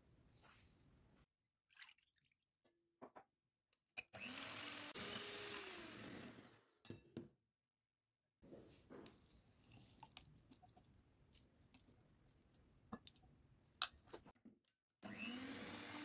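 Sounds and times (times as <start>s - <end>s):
electric hand mixer whisking cream: 4.2s - 6.5s, 15.0s - 16.0s.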